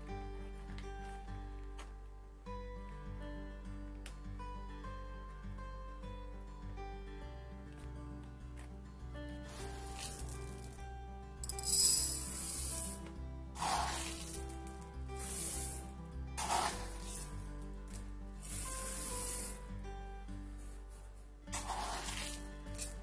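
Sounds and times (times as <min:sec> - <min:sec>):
soft background music: 0:00.0 - 0:23.0
rice grains pouring into pot: 0:09.5 - 0:10.4, 0:11.5 - 0:13.0, 0:13.6 - 0:19.7, 0:21.5 - 0:22.9.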